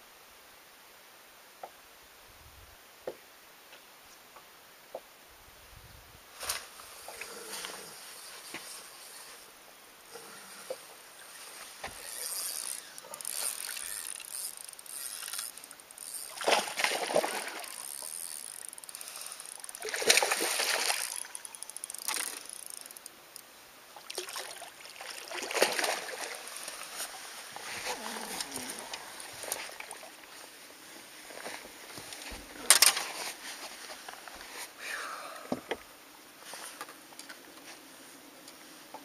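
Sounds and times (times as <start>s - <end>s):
water splashing at boat bow: 16.3s - 17.8s, 19.8s - 21.4s, 24.0s - 26.8s.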